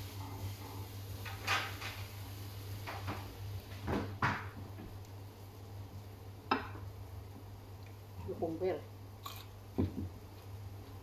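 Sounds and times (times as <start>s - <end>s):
kitchen things knocking and clattering: 1.2s - 2.0s, 2.9s - 4.6s.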